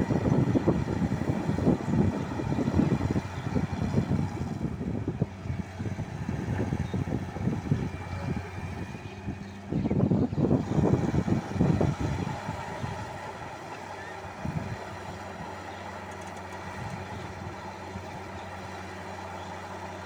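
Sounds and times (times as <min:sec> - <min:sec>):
wind on microphone: 0:00.0 - 0:13.5, 0:14.3 - 0:15.5
excavator diesel engine: 0:00.0 - 0:20.0.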